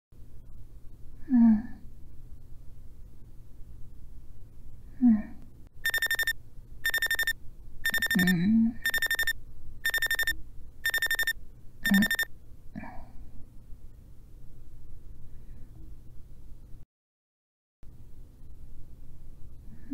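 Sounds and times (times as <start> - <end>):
phone alarm beeping: 5.8 - 12.3.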